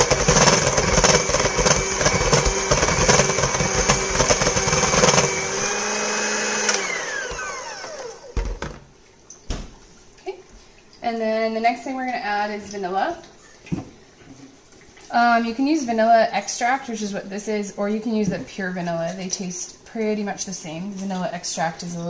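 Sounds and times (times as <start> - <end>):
electric hand mixer whining: 0.0 - 8.6.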